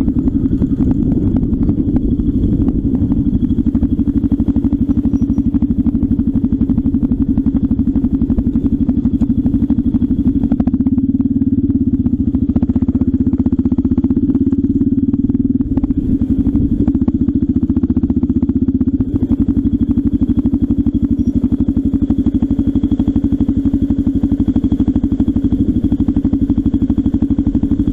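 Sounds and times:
deeper engine rumble: 0:00.0 - 0:27.9
motorcycle engine running: 0:00.0 - 0:27.9.

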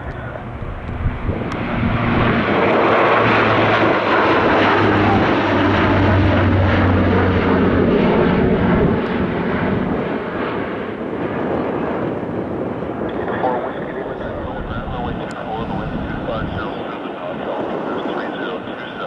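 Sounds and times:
deep propeller hum: 0:00.0 - 0:19.0
turboprop aircraft drone: 0:00.0 - 0:19.0.

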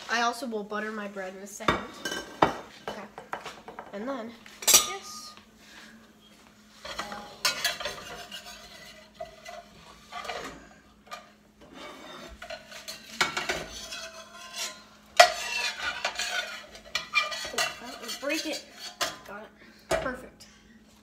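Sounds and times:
faint steady hum: 0:00.0 - 0:21.0
metal spatula scraping frying pan: 0:06.8 - 0:19.3.

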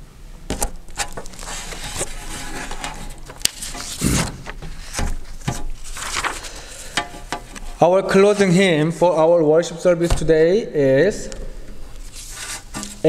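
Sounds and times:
paper rustling: 0:00.5 - 0:08.6, 0:11.9 - 0:13.0.

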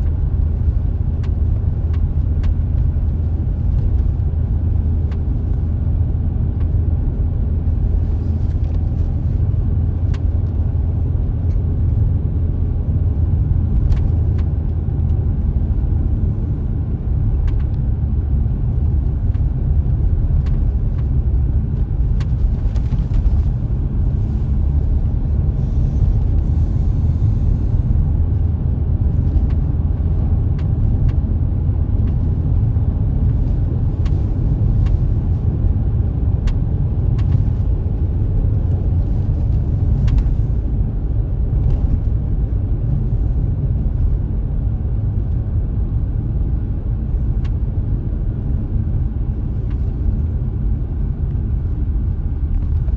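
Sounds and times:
tyres and engine rumble: 0:00.0 - 0:52.9.

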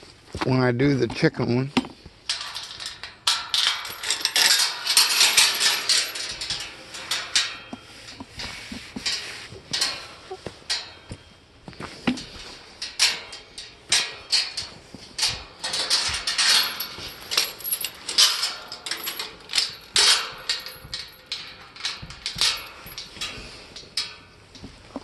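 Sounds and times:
metal chain clinking: 0:02.3 - 0:11.5, 0:12.1 - 0:24.5
coat rustling: 0:16.1 - 0:18.2.

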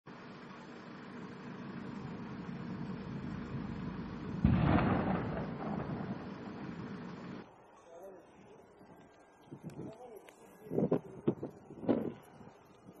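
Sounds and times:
low rumble: 0:01.6 - 0:07.4
loud explosion boom: 0:03.3 - 0:07.0.

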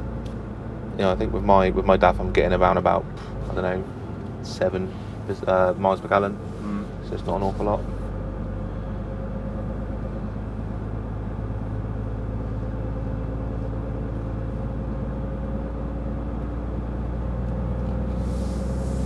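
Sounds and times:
road noise: 0:00.0 - 0:19.0
truck diesel engine drone: 0:00.0 - 0:19.0.

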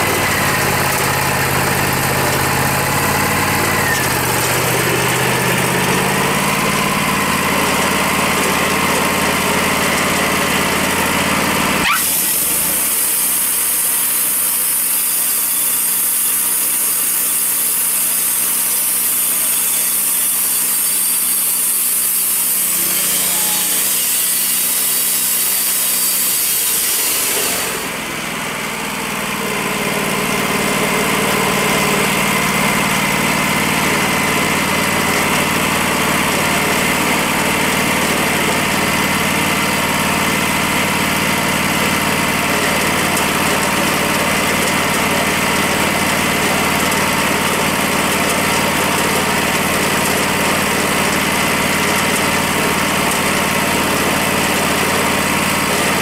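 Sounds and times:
sawmill engine running: 0:00.0 - 0:56.0
band saw hissing: 0:11.8 - 0:28.0.

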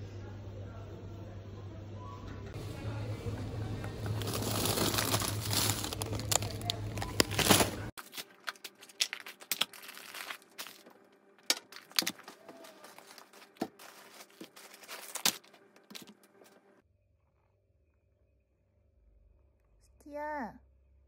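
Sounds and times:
plastic packaging crinkling: 0:03.9 - 0:16.8.

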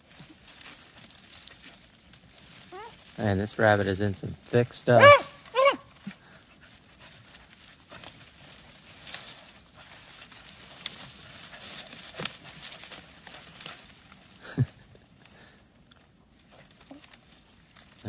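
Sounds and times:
movement through snowy brush: 0:00.0 - 0:18.0
short cry: 0:05.0 - 0:05.9.

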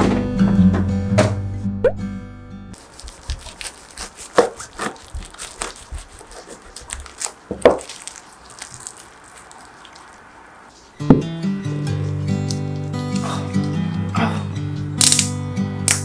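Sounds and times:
knife cutting through paper wrap: 0:02.8 - 0:09.8
paper crinkling: 0:02.8 - 0:10.9.

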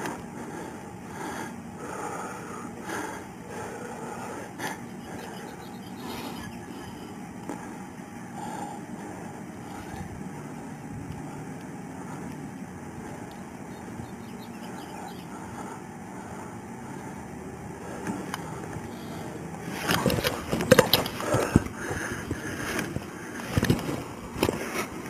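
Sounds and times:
steady background noise: 0:00.0 - 0:25.0
sleeve scraping body camera: 0:19.7 - 0:21.6.

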